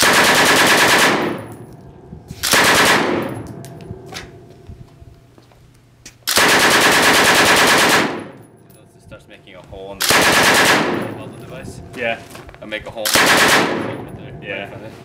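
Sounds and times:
machine gun firing bursts: 0.0s - 1.5s, 2.4s - 3.3s, 6.3s - 8.4s, 10.0s - 11.2s, 13.1s - 14.0s.

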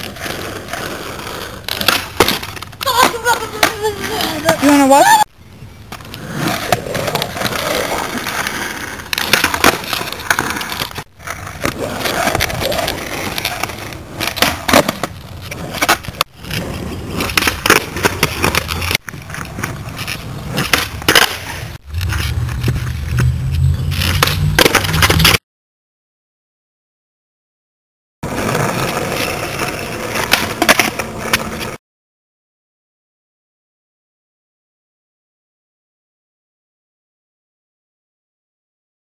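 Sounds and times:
skateboard clacks: 0.0s - 5.2s, 5.9s - 23.3s, 23.9s - 25.4s, 28.2s - 31.8s
skateboard wheels rolling on asphalt: 0.0s - 25.4s, 28.2s - 31.8s.

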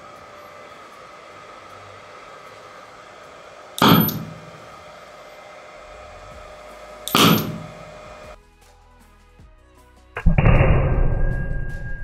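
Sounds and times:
loud sharp gas ignition bangs: 3.7s - 5.0s, 5.9s - 8.4s.

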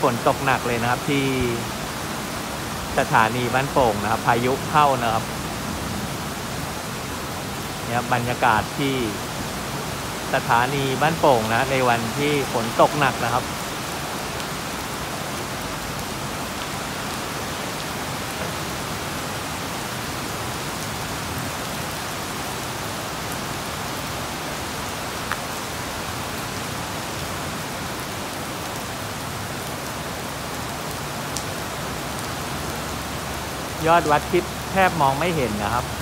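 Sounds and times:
heavy rain on roof: 0.0s - 36.0s.

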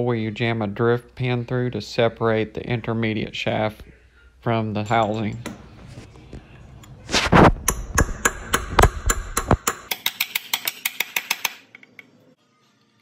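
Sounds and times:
metal tool tapping on metal: 4.8s - 5.7s, 7.6s - 12.1s.

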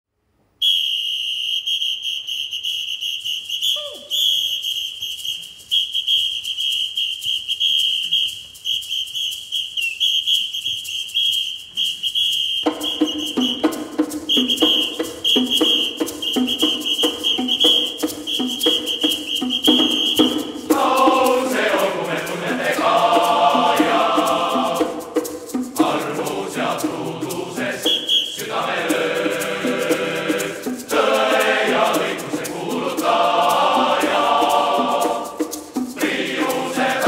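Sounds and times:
shrill whistle blasts: 0.6s - 21.6s, 27.7s - 28.7s
light clicking percussion: 12.7s - 37.0s
men's choir singing: 19.7s - 37.0s.

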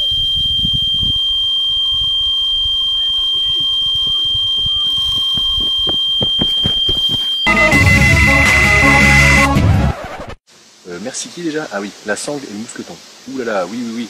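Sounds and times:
bite alarm high-pitched tone: 2.9s - 9.6s.

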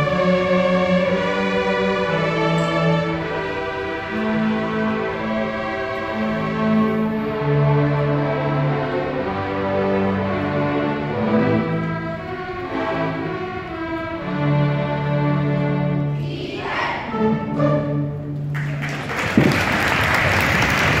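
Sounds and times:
string orchestra holding chords: 0.0s - 21.0s
audience applause: 18.5s - 21.0s.

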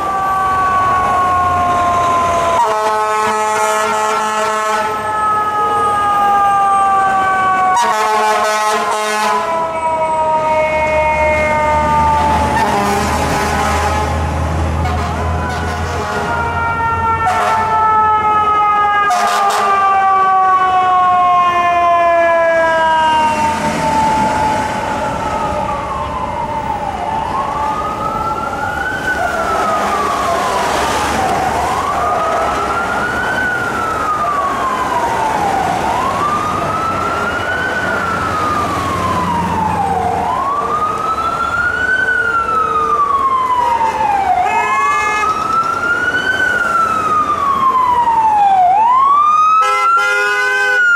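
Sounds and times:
electronic wail siren: 0.0s - 14.2s, 15.0s - 50.9s
city traffic: 0.0s - 50.9s.

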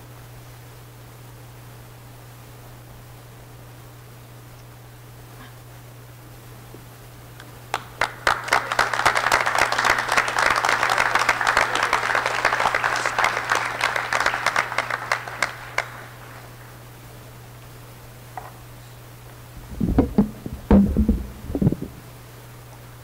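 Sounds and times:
audience applauding: 7.7s - 16.8s.

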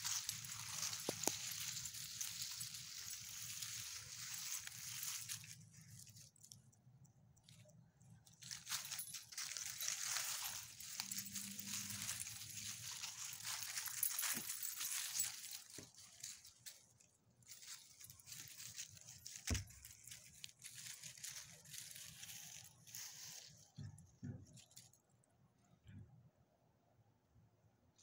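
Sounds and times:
dry leaves crunching under paws: 0.0s - 6.5s, 8.4s - 23.7s.

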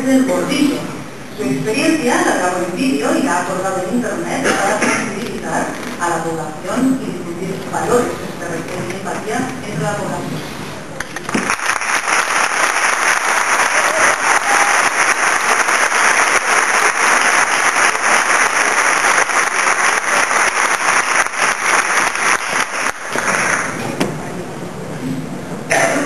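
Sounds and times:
audience applauding: 11.0s - 23.8s.

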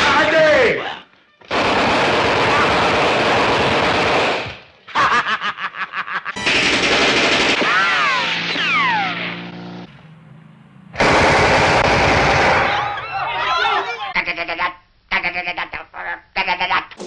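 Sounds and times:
automatic gunfire: 1.5s - 4.6s, 6.4s - 8.7s, 11.0s - 13.0s
submachine-gun burst: 1.5s - 4.6s, 6.4s - 8.7s, 11.0s - 13.0s
falling whines: 7.6s - 14.1s.

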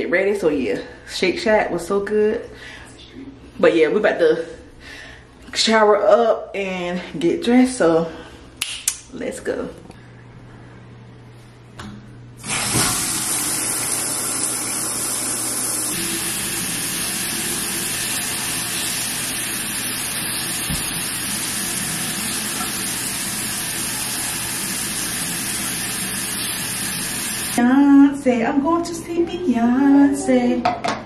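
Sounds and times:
shower water spraying: 12.4s - 27.6s.

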